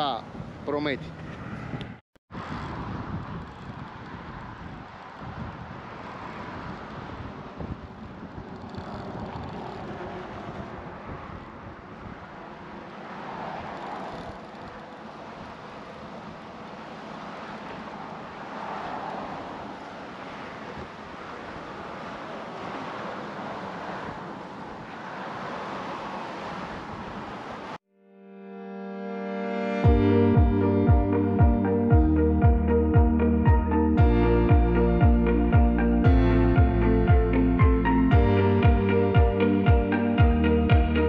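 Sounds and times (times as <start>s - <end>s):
cars passing: 0.0s - 27.8s, 29.8s - 41.0s
wind buffeting microphone: 0.0s - 27.8s.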